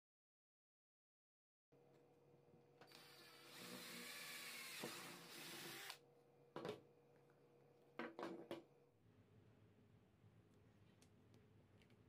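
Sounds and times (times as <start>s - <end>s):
electric drill whining: 2.9s - 6.0s.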